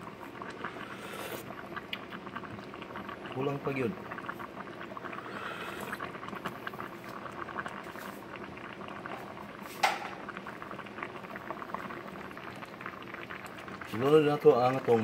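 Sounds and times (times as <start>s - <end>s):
soup boiling with bubbles: 0.0s - 15.0s.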